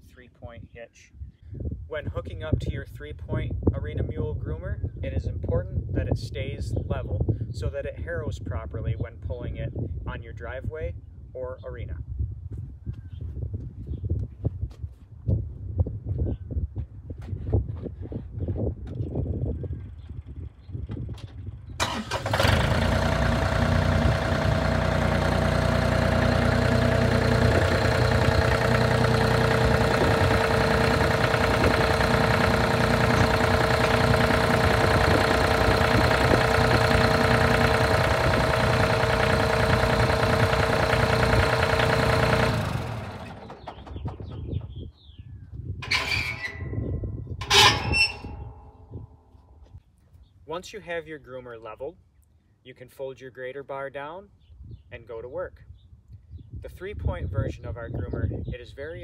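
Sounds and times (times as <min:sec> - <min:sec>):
tractor diesel engine running: 0:21.4 - 0:44.8, 0:45.8 - 0:49.4.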